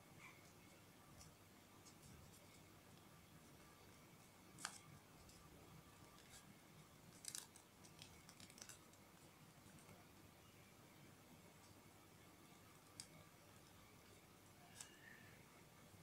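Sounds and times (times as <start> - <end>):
paper crinkling and crackling: 3.9 - 5.4, 6.0 - 10.0.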